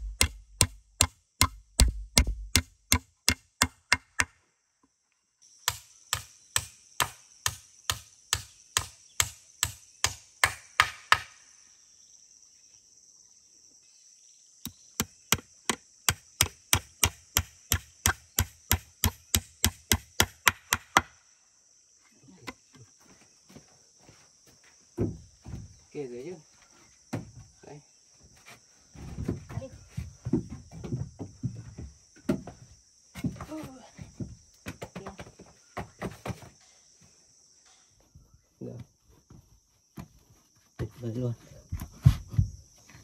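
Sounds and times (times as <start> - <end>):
hatchet hammering nails into wood: 0.0 - 4.3, 5.6 - 11.4, 14.7 - 21.2.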